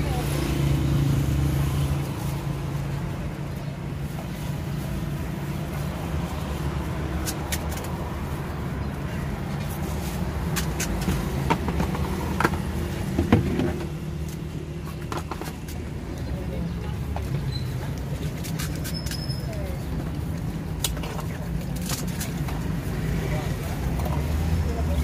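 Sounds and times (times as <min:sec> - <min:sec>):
street traffic rumble: 0:00.0 - 0:25.0.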